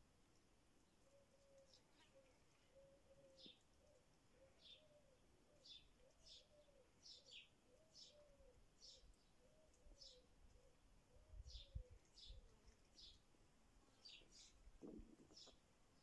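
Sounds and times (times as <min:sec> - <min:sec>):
small bird chirping: 0:01.1 - 0:13.3, 0:14.0 - 0:16.0.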